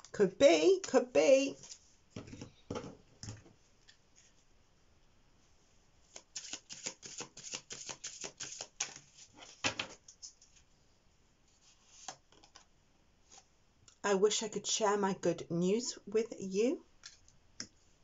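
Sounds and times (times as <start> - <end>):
cards being shuffled: 6.1 - 10.4.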